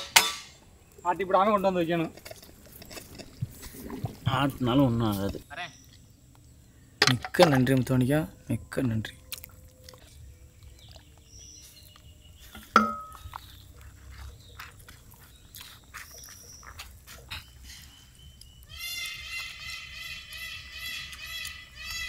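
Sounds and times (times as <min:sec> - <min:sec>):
hands mixing rice: 0:11.7 - 0:19.5.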